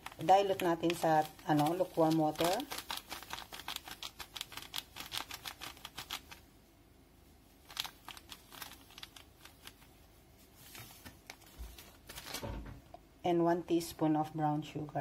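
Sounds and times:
plastic pack crinkling: 0.0 - 6.4, 7.5 - 12.7.

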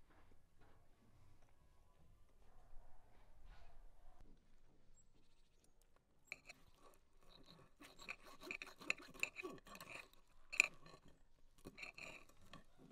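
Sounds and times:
utensil scraping a dish: 6.3 - 12.9.

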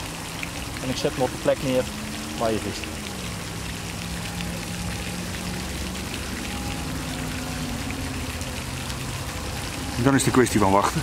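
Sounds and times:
fountain spray splashing: 0.0 - 11.0
low steady hum: 0.0 - 11.0.

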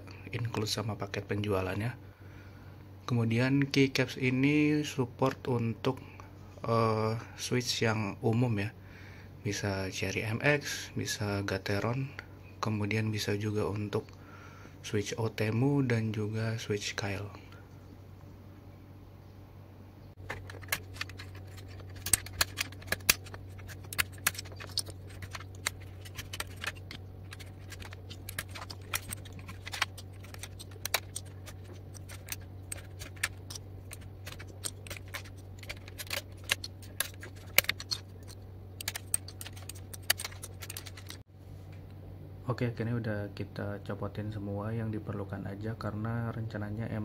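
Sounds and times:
keycaps pulled off clicking: 20.3 - 41.2.

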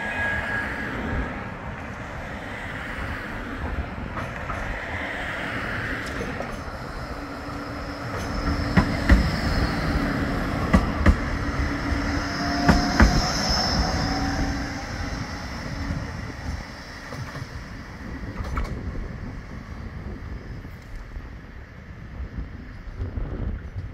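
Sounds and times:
tram low hum and high whine: 0.0 - 23.9
tram wheels clacking over track joints: 3.5 - 20.0.

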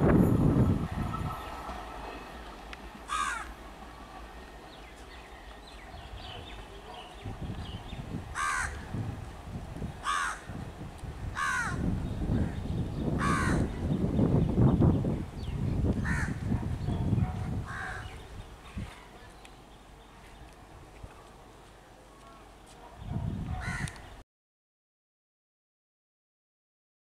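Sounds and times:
electric train rumble: 0.0 - 18.6
crows cawing: 3.1 - 3.5, 8.4 - 8.8, 10.0 - 10.5, 11.4 - 11.8, 13.2 - 13.7, 16.0 - 16.4, 17.7 - 18.1, 23.6 - 24.0.

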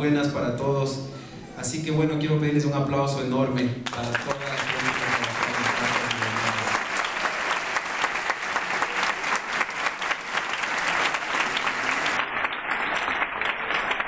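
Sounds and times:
audience applauding: 3.8 - 14.0.

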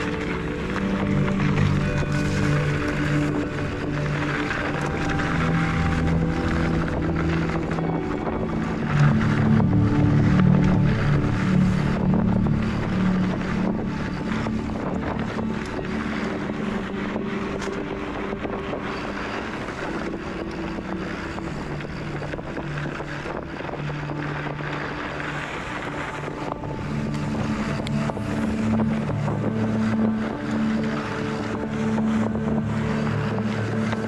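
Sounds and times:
bike tyres on dirt: 0.0 - 34.0
steady humming drone: 0.0 - 34.0
wind rushing over microphone: 0.0 - 34.0.

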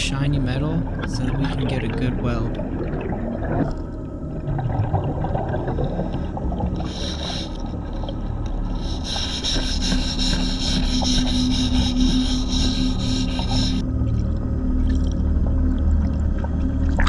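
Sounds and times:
low rumble of water: 0.0 - 17.0
underwater scraping: 1.0 - 13.9.

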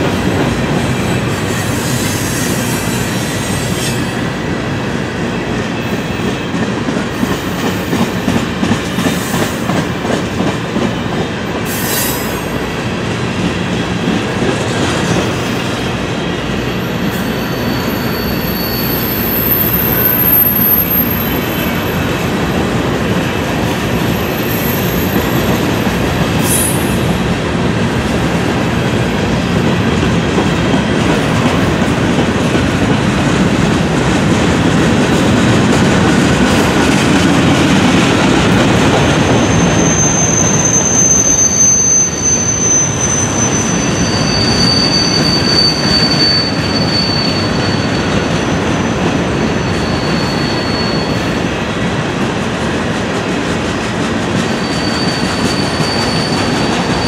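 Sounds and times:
high-pitched wheel squeal: 17.0 - 22.0, 39.2 - 51.5, 54.4 - 57.0.

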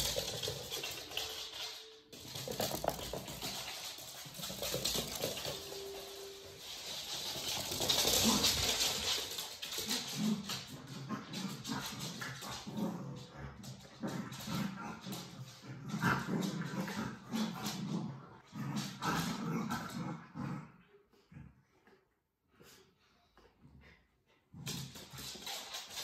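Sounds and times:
dog claws scrabbling on floor: 0.0 - 6.0
dogs growling while wrestling: 7.8 - 21.8.

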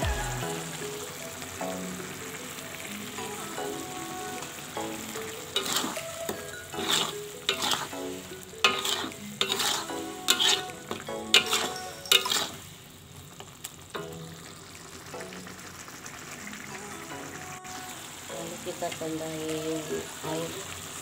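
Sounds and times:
paste sizzling: 0.0 - 19.0
ladle scraping in a wok: 5.6 - 6.1, 6.7 - 8.0, 8.6 - 10.8, 11.4 - 12.7.

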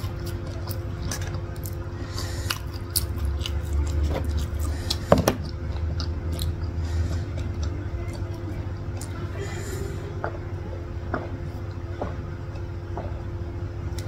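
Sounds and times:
chewing and mouth sounds: 0.0 - 9.5.

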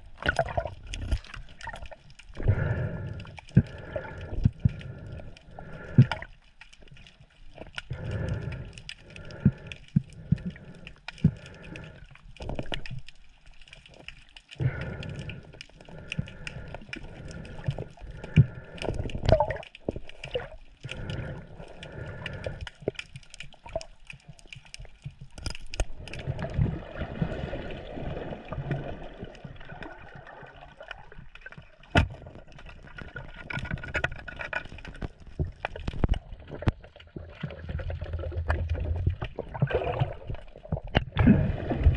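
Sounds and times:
water sloshing and splashing: 0.0 - 41.9.

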